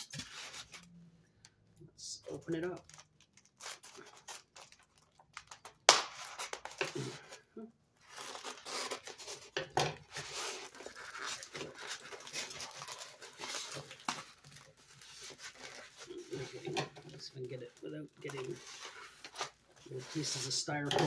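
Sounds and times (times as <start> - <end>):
cardboard rustling and scraping: 18.2 - 20.9.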